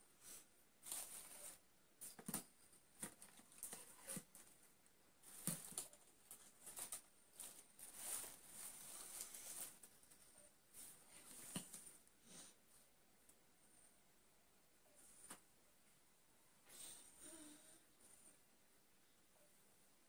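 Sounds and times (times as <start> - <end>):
rustling of flower stems: 0.3 - 2.4, 3.0 - 12.0.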